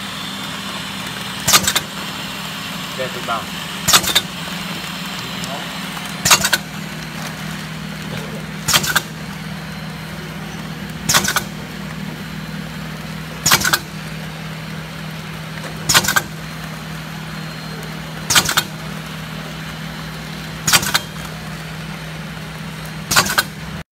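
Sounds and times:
machine sharp bursts: 0.0 - 23.8
machine humming: 0.0 - 23.9.

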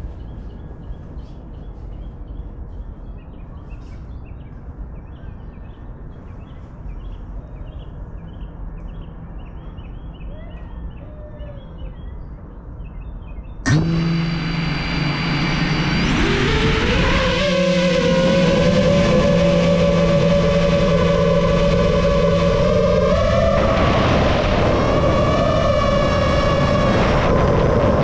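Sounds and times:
birds chirping: 0.0 - 17.0
low outdoor hum: 0.0 - 28.0
quadcopter motors whining: 13.7 - 28.0.

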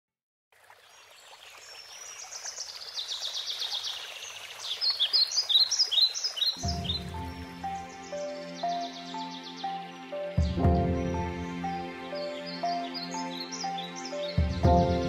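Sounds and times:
birds chirping and trilling: 0.9 - 15.0
music with low sustained notes: 6.6 - 15.0.

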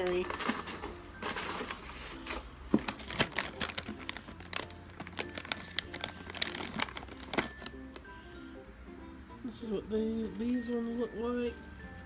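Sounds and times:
plastic bag crinkling: 2.8 - 8.0.

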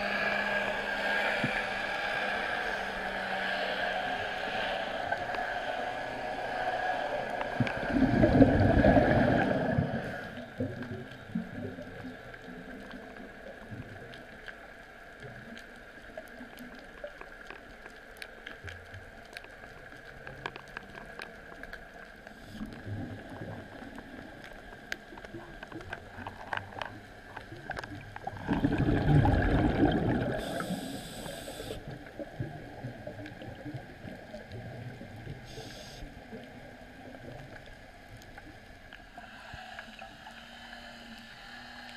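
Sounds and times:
diver regulator exhaling bubbles: 7.5 - 11.0, 27.7 - 32.0
faint clicks: 10.3 - 22.8
underwater hiss: 28.3 - 32.0, 35.4 - 36.3, 39.1 - 41.9.

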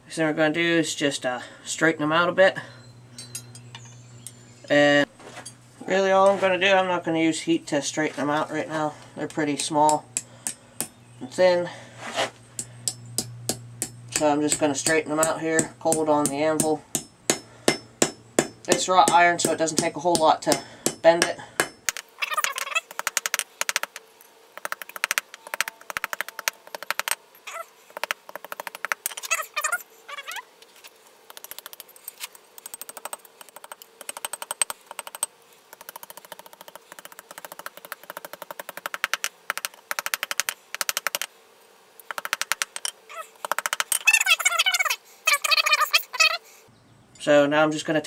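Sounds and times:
hammer tapping iron on anvil: 9.3 - 11.0, 12.6 - 22.0.

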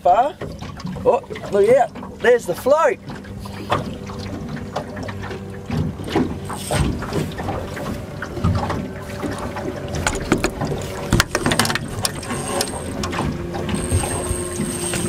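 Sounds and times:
sharp knocks: 10.0 - 12.3
fishing reel clicking: 11.5 - 13.1, 13.7 - 15.0.

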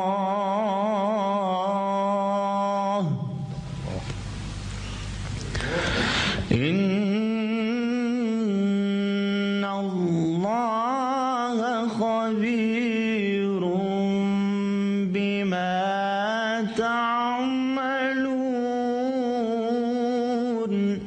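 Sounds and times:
man reciting in melodic chant: 0.0 - 4.2, 5.5 - 21.0
breath: 4.8 - 6.5.

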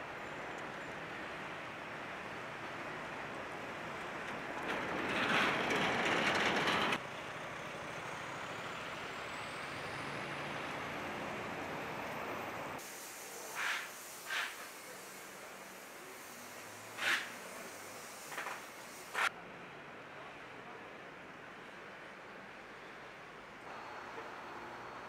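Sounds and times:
city street traffic: 0.0 - 25.0
loud hiss: 12.8 - 19.3.

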